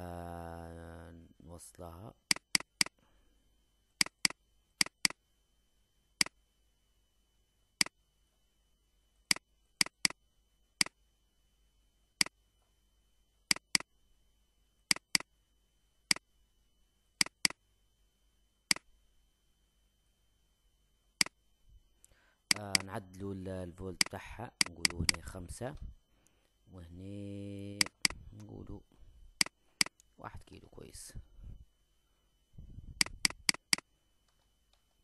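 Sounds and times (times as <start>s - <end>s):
computer mouse button clicking: 2.3s - 3.0s, 13.5s - 13.9s, 14.9s - 15.3s.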